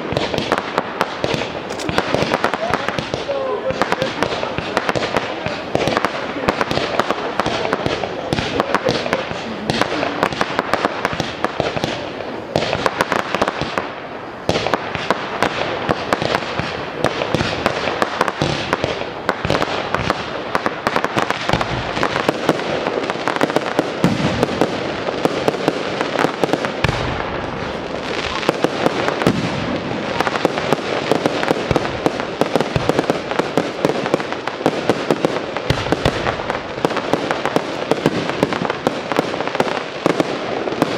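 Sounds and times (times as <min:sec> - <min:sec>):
fireworks bangs and crackles: 0:00.0 - 0:40.9
deep firework boom: 0:24.0 - 0:25.4, 0:26.6 - 0:27.8, 0:28.5 - 0:33.8.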